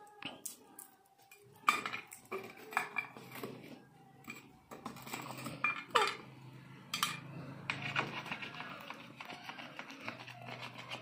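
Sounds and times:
metal bowl clinking on table: 0:06.9 - 0:07.8.

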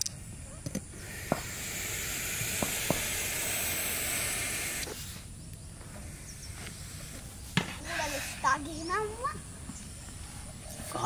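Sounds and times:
snake hissing: 0:00.9 - 0:05.4, 0:06.0 - 0:09.2.

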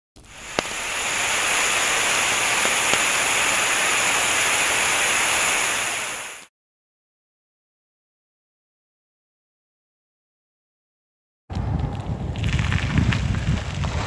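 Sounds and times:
water spraying from fire hose: 0:00.2 - 0:06.5.

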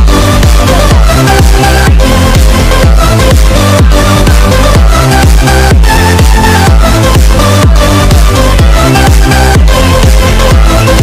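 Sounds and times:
electronic dance music: 0:00.0 - 0:11.0.

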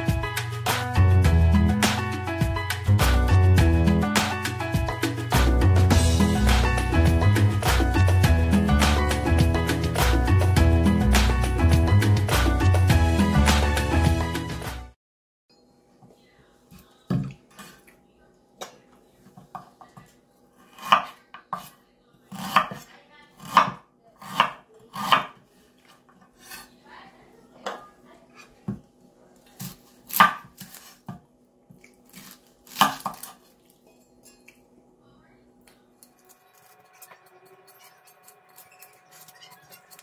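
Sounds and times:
knife chopping on cutting board: 0:20.7 - 0:25.4, 0:29.6 - 0:31.2, 0:32.1 - 0:33.4.

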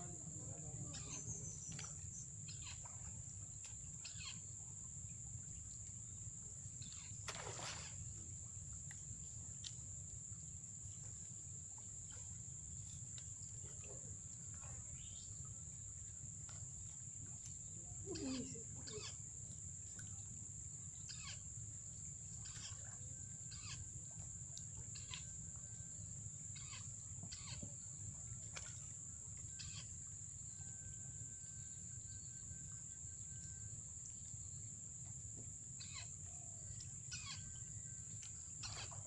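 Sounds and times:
high insect buzz: 0:06.8 - 0:08.5, 0:35.8 - 0:36.2, 0:37.1 - 0:37.6
short bird calls: 0:26.6 - 0:27.7, 0:37.1 - 0:37.6.

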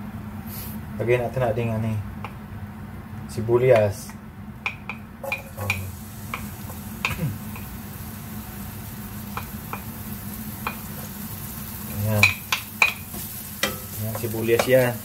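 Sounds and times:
wooden spatula clicking and tapping: 0:04.6 - 0:07.7, 0:09.3 - 0:09.9, 0:10.6 - 0:10.9, 0:12.2 - 0:15.0
onion sizzling in hot oil: 0:05.2 - 0:15.0.

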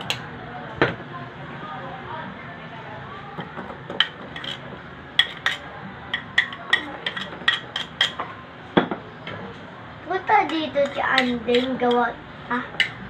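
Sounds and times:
metal spoon clinking on saucer: 0:04.0 - 0:08.2.

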